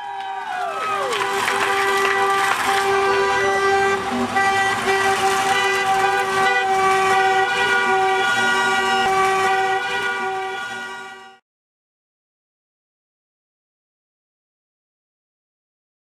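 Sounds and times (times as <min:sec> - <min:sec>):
car horns honking: 0:00.8 - 0:11.4.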